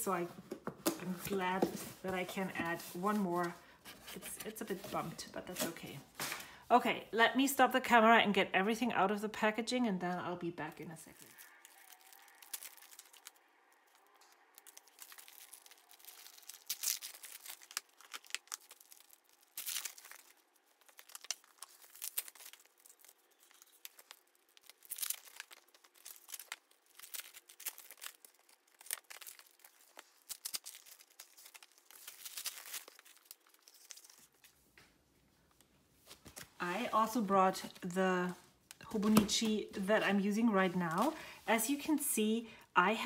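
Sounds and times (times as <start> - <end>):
plastic packaging tearing and crinkling: 11.1 - 34.6.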